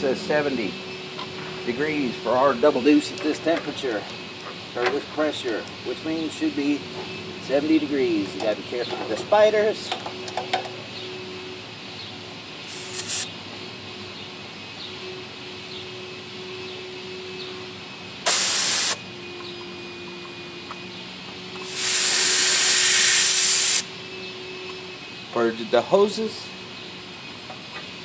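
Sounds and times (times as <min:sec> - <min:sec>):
refrigerant hissing from hoses: 0:12.6 - 0:13.3, 0:18.2 - 0:19.0, 0:21.6 - 0:23.9.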